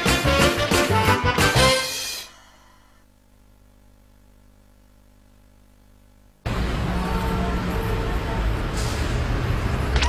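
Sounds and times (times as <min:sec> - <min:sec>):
upbeat cartoon music: 0:00.0 - 0:02.3.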